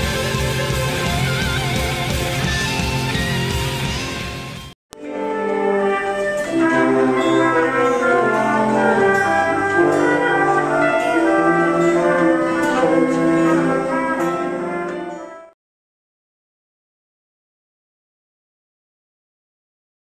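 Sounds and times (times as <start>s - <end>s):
orchestral music with brass chords: 5.0s - 15.6s.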